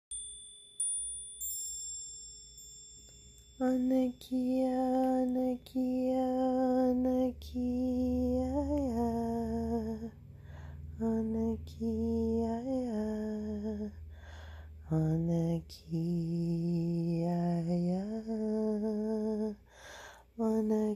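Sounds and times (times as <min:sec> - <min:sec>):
high chime strikes: 0:00.1 - 0:04.8.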